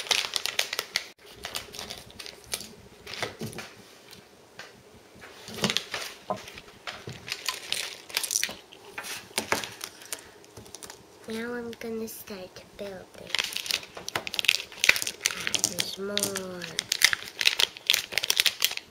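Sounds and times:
crinkly wrapper torn open: 0.0 - 3.3, 7.2 - 11.1, 13.3 - 18.9.

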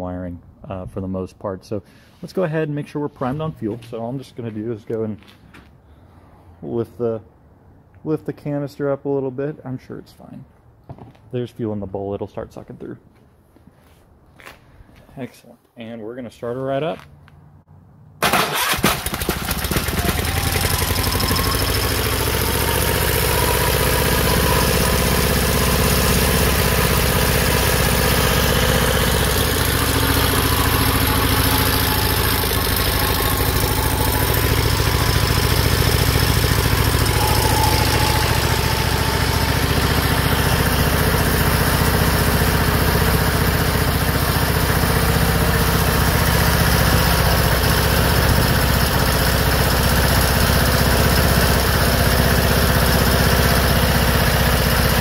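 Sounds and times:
electric starter cranking: 18.2 - 45.4
engine idling: 18.2 - 55.0.

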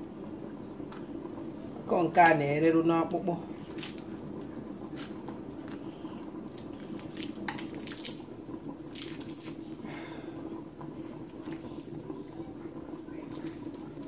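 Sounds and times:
steady low hum: 0.0 - 14.0
dry fish crackling and rustling: 3.5 - 10.2.

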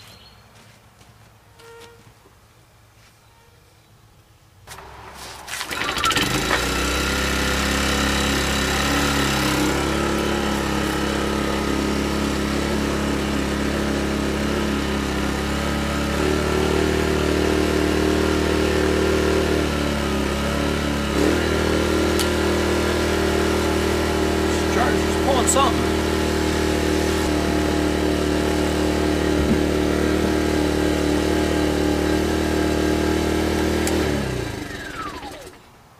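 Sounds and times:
small generator running: 4.7 - 35.7.

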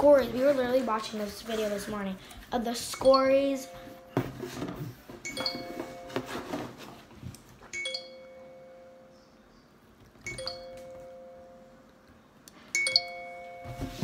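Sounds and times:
two-note phone ringtone chime: 5.2 - 6.4, 7.8 - 9.4, 10.3 - 11.8, 12.8 - 14.0.

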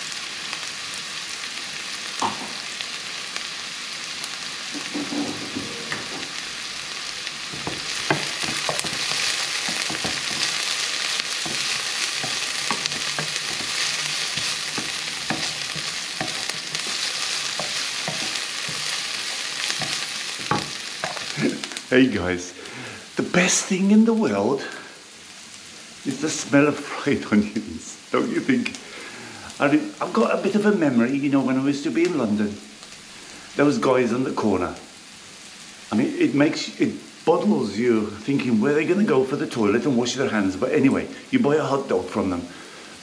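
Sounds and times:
onions sizzling in oil: 0.0 - 43.0
spatula knocking and scraping pan: 4.8 - 6.3, 7.5 - 21.4.

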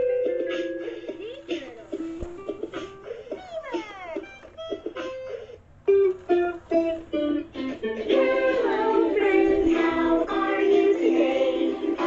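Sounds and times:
sung children's song with music: 6.4 - 12.0.

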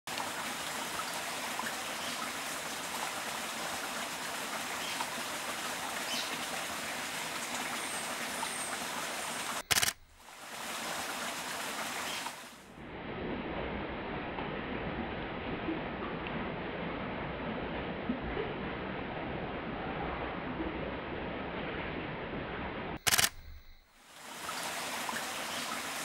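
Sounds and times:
rushing running water: 0.1 - 12.8, 23.2 - 26.0.

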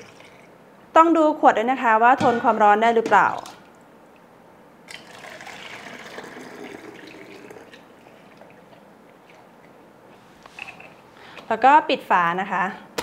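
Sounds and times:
water trickling into a plastic bottle: 0.0 - 0.5, 4.9 - 9.4.

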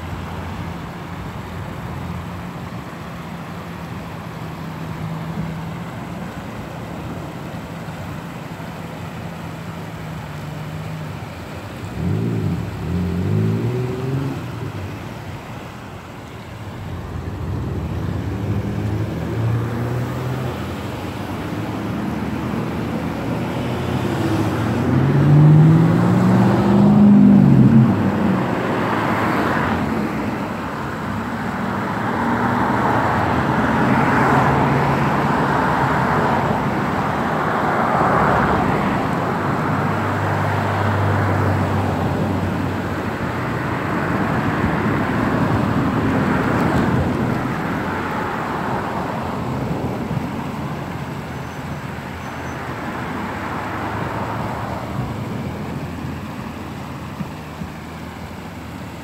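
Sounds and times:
creek water rushing over rocks: 0.0 - 59.0
motor vehicle passing: 10.4 - 30.6.

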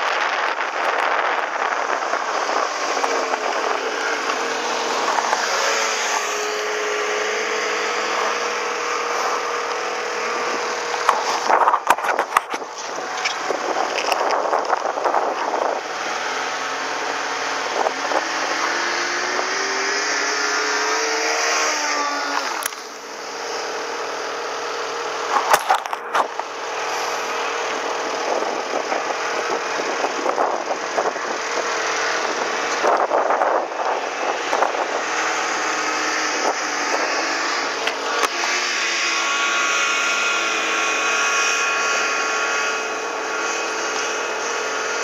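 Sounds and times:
snowmobile engine running: 0.0 - 45.0
wind rush on microphone: 0.0 - 45.0
sharp knocks and crackling: 10.9 - 15.2.

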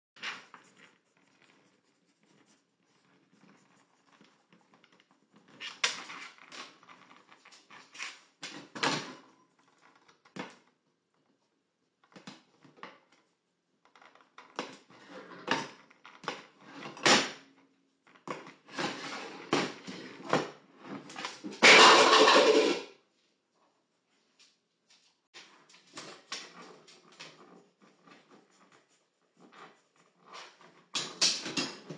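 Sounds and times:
pan clattering off hob: 21.5 - 22.8.

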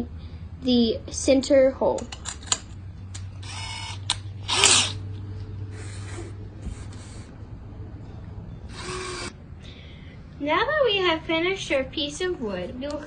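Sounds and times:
power drill boring into wood: 3.4 - 5.0, 8.7 - 9.3.

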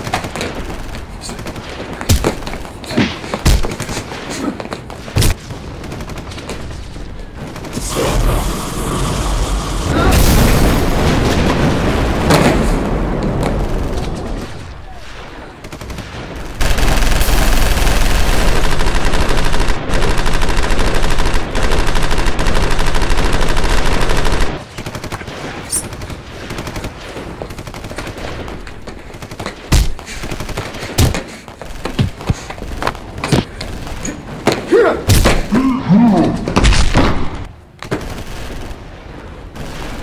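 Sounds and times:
rapid machine-gun fire: 5.2 - 6.6, 7.3 - 8.7, 15.6 - 31.1.

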